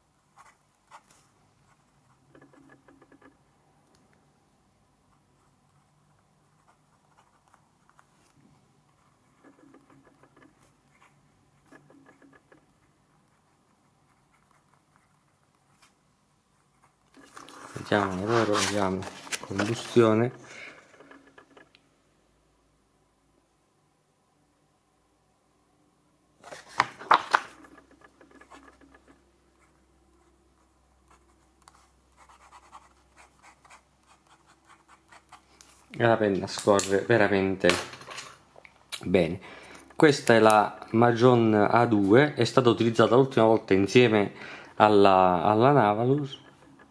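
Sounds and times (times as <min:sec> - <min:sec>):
fountain pen scratching paper: 0:00.3 - 0:03.4, 0:05.1 - 0:18.9, 0:27.6 - 0:35.9
notebook knocks and rustles: 0:17.3 - 0:20.0, 0:26.4 - 0:28.8.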